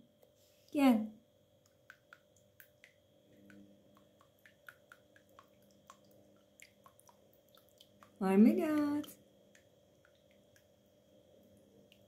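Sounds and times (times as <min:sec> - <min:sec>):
cat lapping water: 0:01.8 - 0:08.2.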